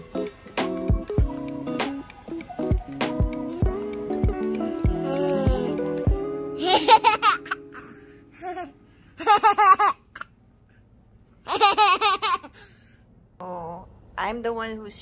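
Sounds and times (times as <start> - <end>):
toddler girl giggling: 6.6 - 10.3, 11.5 - 12.6.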